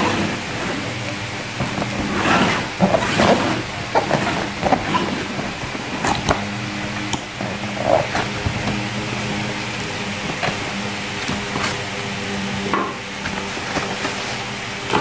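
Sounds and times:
box scraping on floor: 0.0s - 6.2s, 10.2s - 12.6s, 13.2s - 15.0s
steady low hum: 0.0s - 15.0s
hands rubbing cardboard box: 1.5s - 6.3s, 13.3s - 15.0s.

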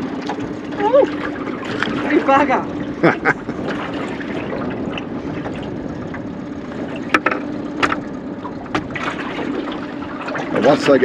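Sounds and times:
outboard motor idling: 0.0s - 11.0s
water splashing around boat: 0.0s - 11.0s.

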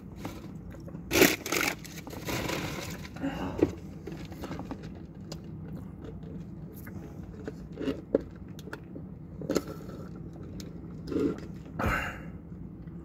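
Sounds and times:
steady low hum: 0.0s - 13.0s
chewing with wet clicks: 5.2s - 9.6s
gulps and slurps: 11.0s - 11.7s.

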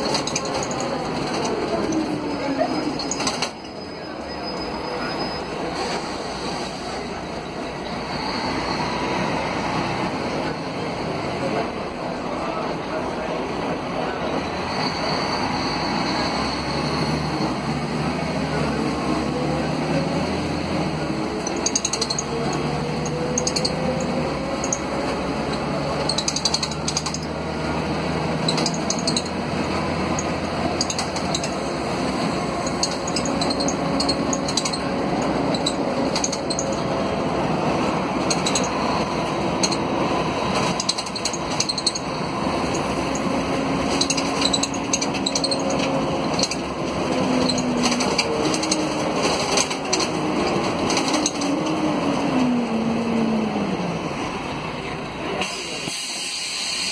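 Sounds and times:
bus interior fittings rattling: 0.0s - 3.8s, 20.2s - 53.1s
bus diesel engine: 0.0s - 56.9s.

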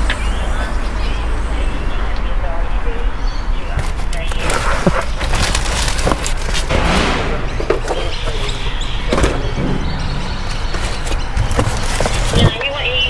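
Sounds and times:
steady low rumble: 0.0s - 13.0s
cardboard scraping: 3.7s - 12.7s
cardboard boxes thudding: 3.8s - 12.8s.

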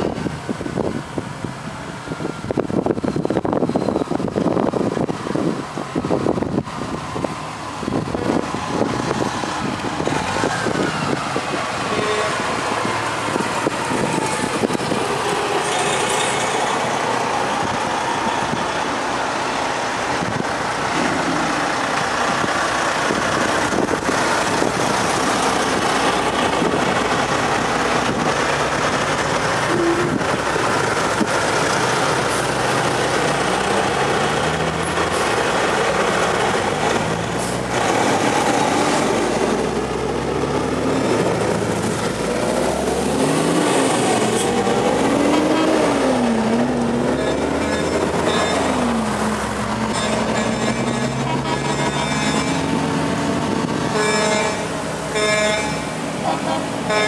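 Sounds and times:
cars passing: 0.0s - 57.0s
trucks driving past: 0.0s - 57.0s.

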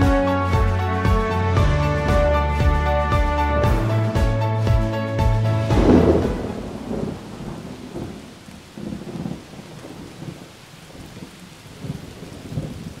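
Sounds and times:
low rumbles: 0.5s - 9.5s.

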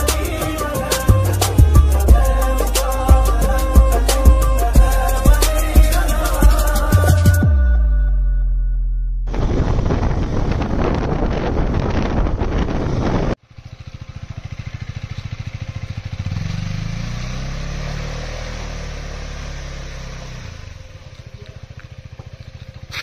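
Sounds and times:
motorcycle engine pulsing: 0.0s - 7.5s, 13.4s - 23.0s
background music: 0.0s - 8.4s.

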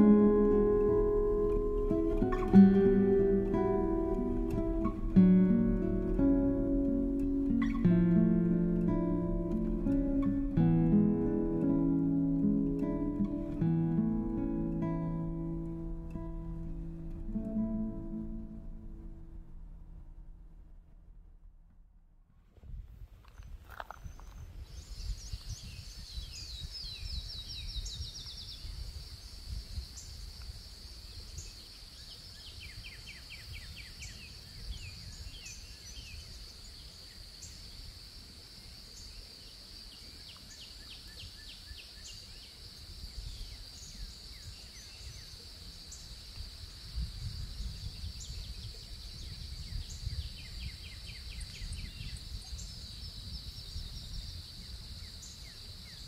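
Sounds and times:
low rumble: 12.2s - 22.9s.

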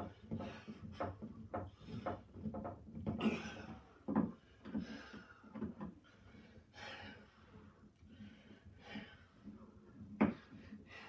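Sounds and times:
tools knocking on plastic hull: 4.0s - 4.9s
heavy breathing: 4.6s - 9.7s, 10.4s - 11.0s.

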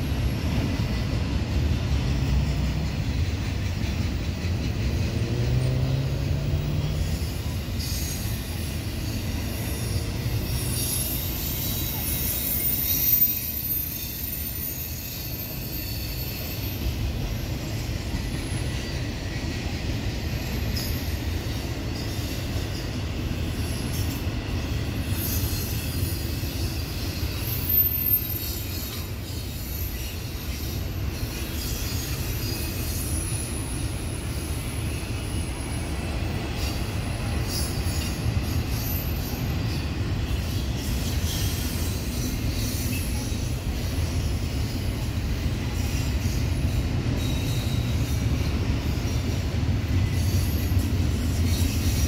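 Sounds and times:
train wheels rumbling on rail: 0.0s - 52.0s
wheel squeal: 6.8s - 19.1s, 23.6s - 45.0s, 45.7s - 52.0s.

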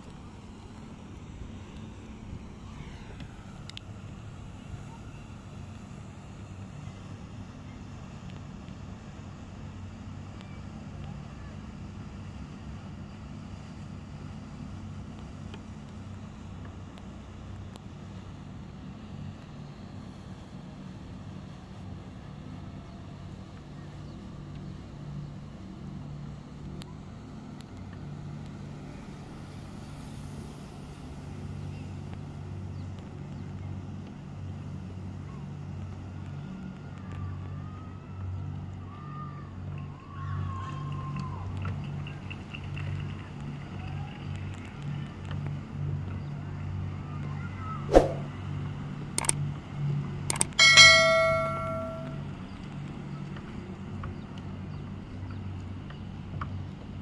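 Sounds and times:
boat engine droning: 0.0s - 57.0s
faint clicks: 3.2s - 3.9s, 49.2s - 49.4s
whoosh: 47.9s - 48.3s
notification bell ding: 50.3s - 52.2s.

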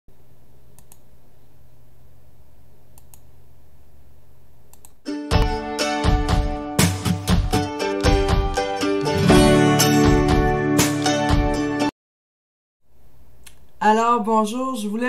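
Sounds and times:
faint steady hum: 0.1s - 5.0s, 12.9s - 15.0s
light clicks: 0.8s - 1.0s, 3.0s - 3.3s
instrumental music with plucked notes: 5.1s - 11.9s.

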